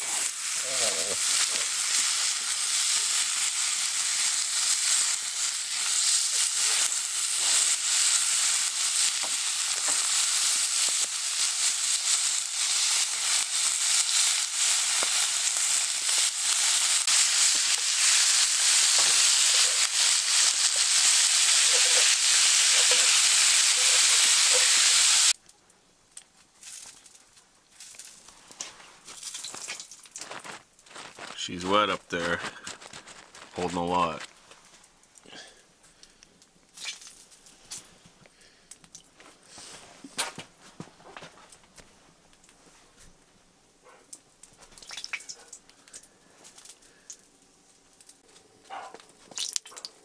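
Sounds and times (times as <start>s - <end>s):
bacon sizzling in a pan: 0.0s - 25.4s.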